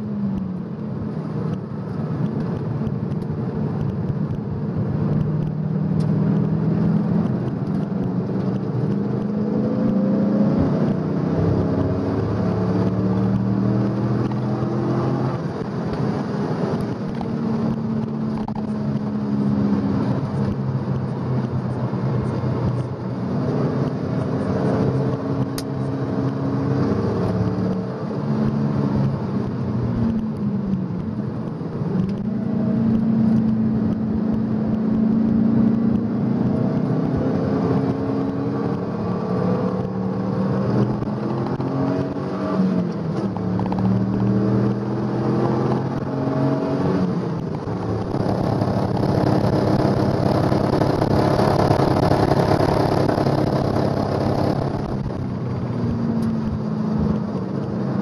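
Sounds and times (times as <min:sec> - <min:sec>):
car engine accelerating through gears: 0:00.0 - 0:58.0.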